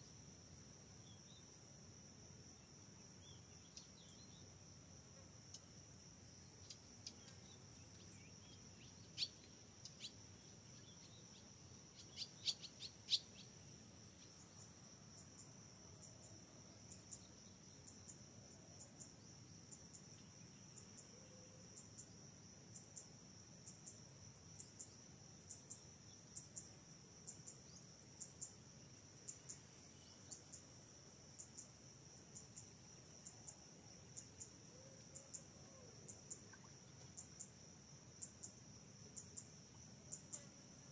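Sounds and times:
insects trilling: 5.5 - 22.1.

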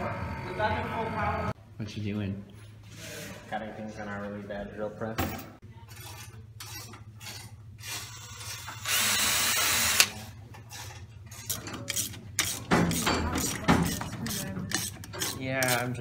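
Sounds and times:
cordless drill running: 8.1 - 10.1.

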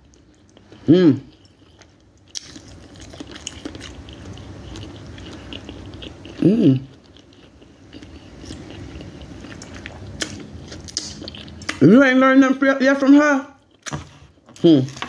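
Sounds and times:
person chewing close up: 0.0 - 12.0, 13.5 - 15.0
person humming mm: 0.8 - 1.3, 6.4 - 6.9.

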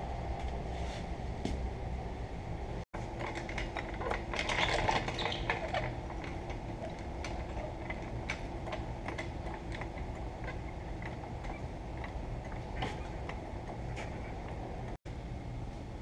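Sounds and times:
steady low hum: 0.0 - 16.0
hand tools tapping metal: 3.2 - 14.9.

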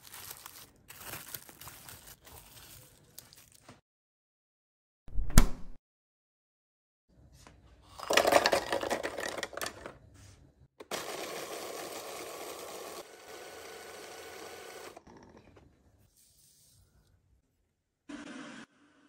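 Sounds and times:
food processor motor running: 10.8 - 15.2.

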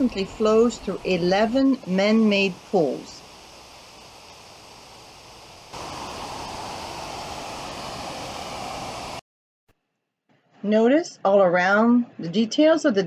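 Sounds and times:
water rushing into pool: 1.3 - 9.2.

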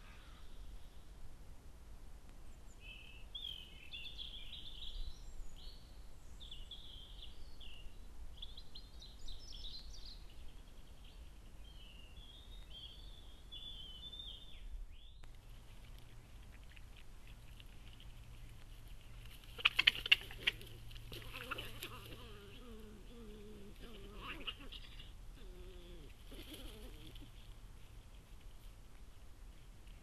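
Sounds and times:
songbird singing: 0.0 - 1.2, 2.4 - 28.2
faint hum: 0.0 - 30.0
steady low background noise: 0.0 - 30.0.

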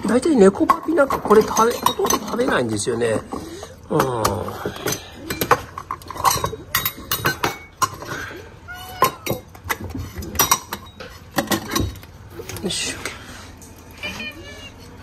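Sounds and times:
food dishes clinking: 0.0 - 12.6
cats meowing: 8.3 - 9.7, 13.9 - 15.0.

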